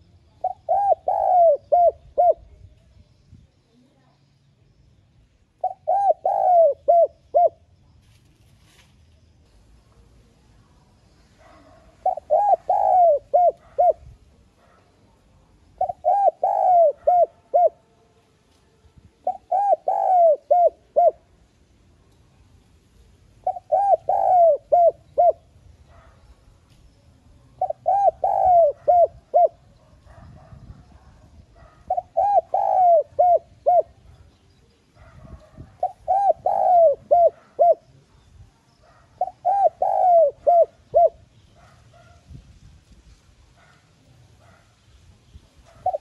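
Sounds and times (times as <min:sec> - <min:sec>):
dove cooing: 0:00.0 - 0:02.6, 0:05.6 - 0:07.7, 0:11.4 - 0:17.9, 0:19.2 - 0:21.3, 0:23.4 - 0:26.2, 0:27.5 - 0:38.2, 0:38.8 - 0:42.2, 0:45.6 - 0:46.0.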